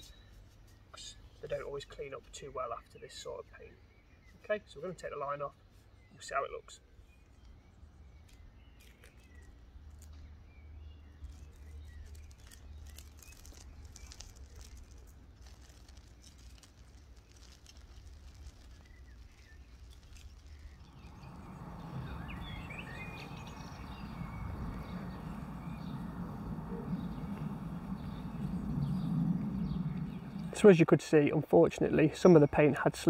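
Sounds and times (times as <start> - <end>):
birds chirping: 0.0 - 33.0
tape peeling with crackling clicks: 7.3 - 10.3, 11.1 - 21.6
steady rustle: 11.2 - 30.7.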